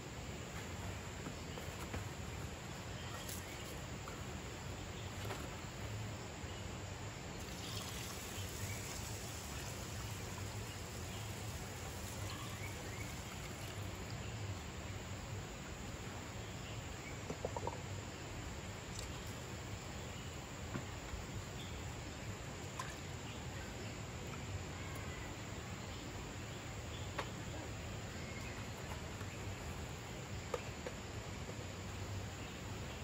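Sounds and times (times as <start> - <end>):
water poured onto rice: 7.4 - 14.2.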